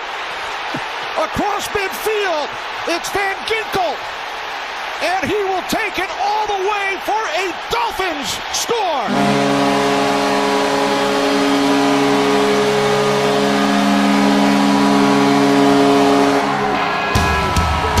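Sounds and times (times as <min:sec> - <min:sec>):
goal horn blast: 0:09.1 - 0:18.0.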